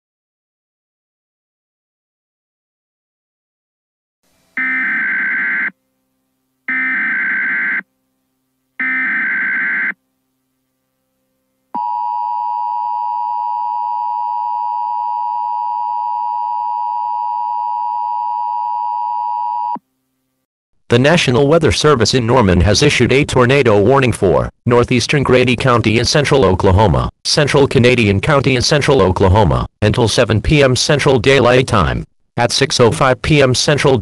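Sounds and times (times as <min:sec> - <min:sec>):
two-tone alert signal: 0:04.6 - 0:05.7, 0:08.8 - 0:10.0.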